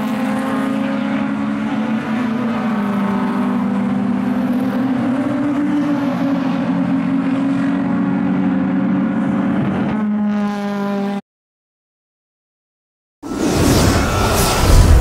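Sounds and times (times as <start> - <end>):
race car engines revving: 0.0 - 11.2.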